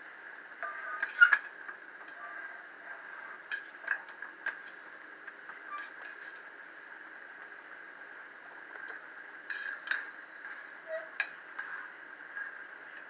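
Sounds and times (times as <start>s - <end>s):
faint hum: 0.0s - 13.0s
spoon scraping metal pan: 9.5s - 12.6s.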